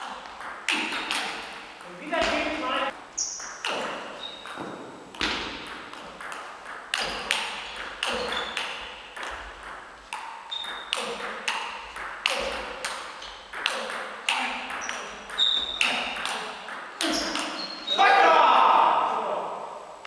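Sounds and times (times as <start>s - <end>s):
table tennis ball clicks: 5.2s - 17.8s.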